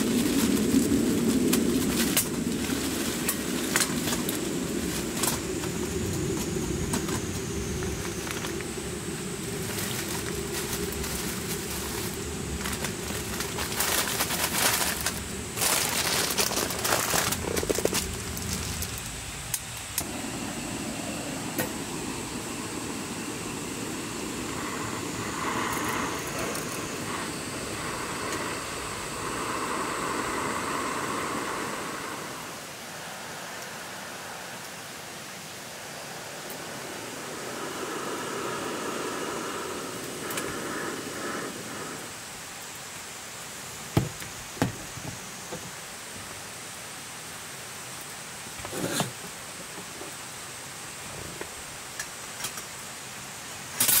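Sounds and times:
bag crinkling: 0:09.6 - 0:19.1.

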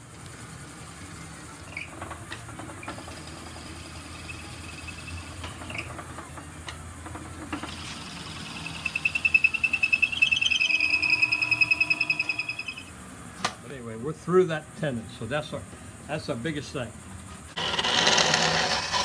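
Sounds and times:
wood lathe running: 0:01.1 - 0:12.8, 0:17.6 - 0:19.0
high pulsing squeal: 0:02.8 - 0:06.0, 0:07.6 - 0:13.1
drill bit boring through wood: 0:02.9 - 0:05.8, 0:07.6 - 0:12.8, 0:17.6 - 0:19.0.

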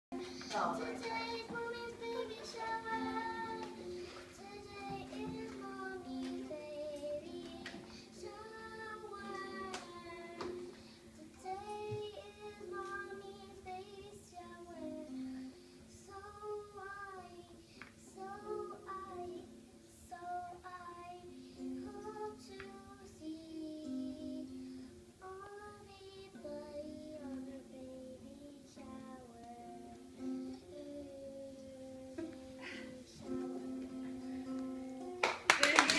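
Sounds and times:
guitar strumming: 0:00.1 - 0:25.3, 0:26.3 - 0:35.9
girl singing: 0:00.1 - 0:35.9.

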